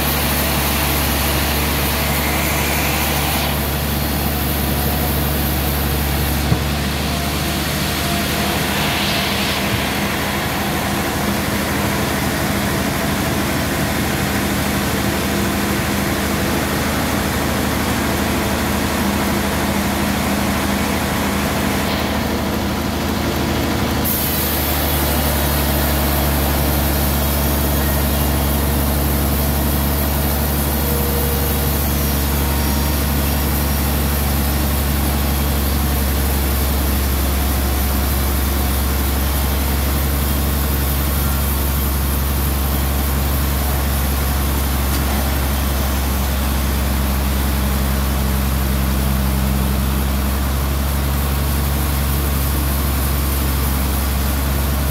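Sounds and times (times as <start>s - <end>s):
band saw cutting log: 0.0s - 14.2s, 20.4s - 49.0s.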